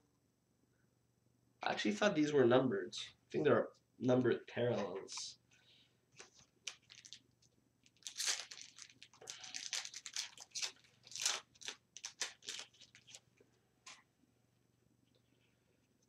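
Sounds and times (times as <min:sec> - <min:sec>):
wrapper tearing and crinkling: 0:06.3 - 0:13.2.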